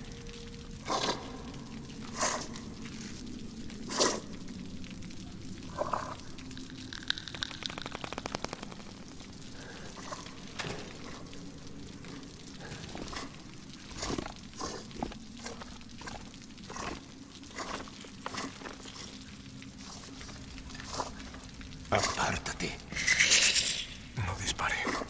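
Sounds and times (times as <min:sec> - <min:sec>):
sharp drip-like ticks: 0:00.0 - 0:23.1
rapid run of clicks: 0:07.5 - 0:09.0.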